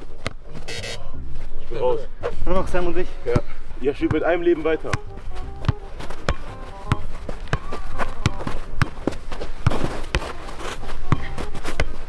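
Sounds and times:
footsteps on artificial turf: 0.4s - 12.0s
ball being kicked: 4.8s - 10.5s, 11.1s - 12.0s.

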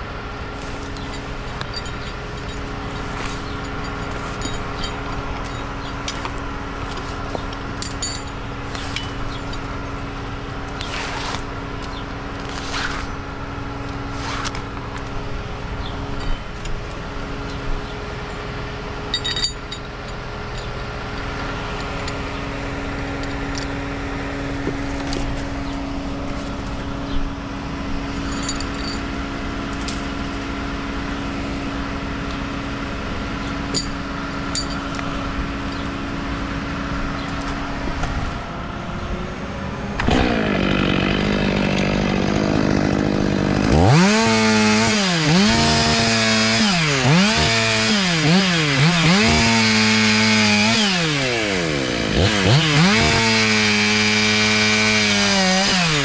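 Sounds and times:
engine running steadily: 0.0s - 56.0s.

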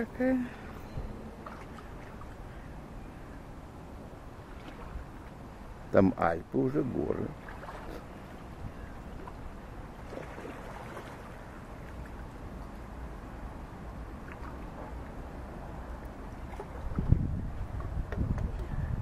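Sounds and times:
wind rumbling on microphone: 6.8s - 19.0s.

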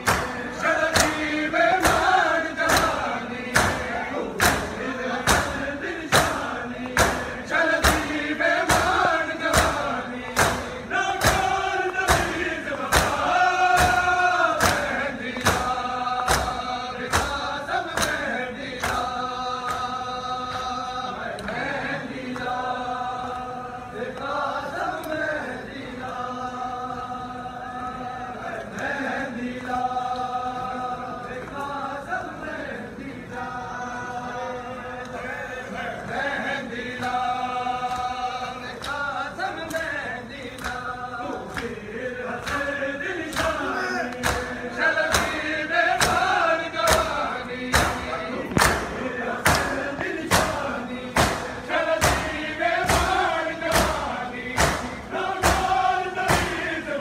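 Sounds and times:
men chanting in unison: 0.0s - 57.0s
hands beating on chests: 46.9s - 50.6s.

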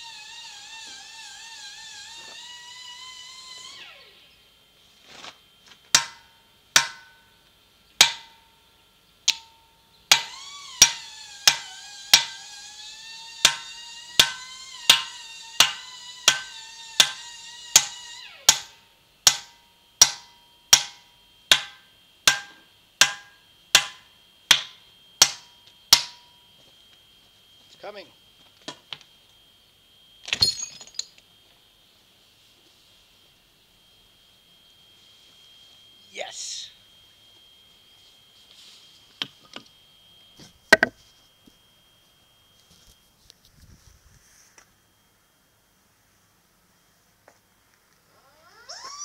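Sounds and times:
hammer striking steel wedges: 5.9s - 7.2s, 8.0s - 8.5s, 9.3s - 12.4s, 13.4s - 17.2s, 17.8s - 26.3s, 40.7s - 41.0s.

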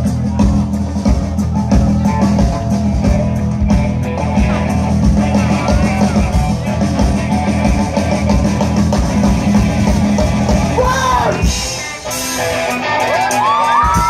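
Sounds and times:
live rock band playing: 0.0s - 14.0s
audience cheering and whooping: 0.3s - 3.5s, 5.3s - 6.6s, 12.7s - 14.0s.

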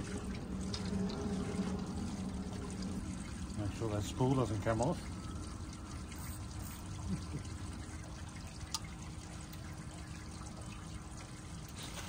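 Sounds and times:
low rumble: 0.0s - 6.1s
water trickling: 0.0s - 12.0s.

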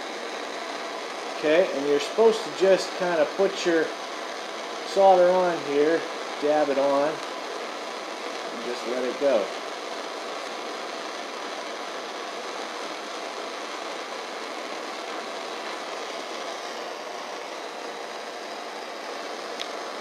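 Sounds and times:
torch flame hissing: 0.0s - 20.0s.

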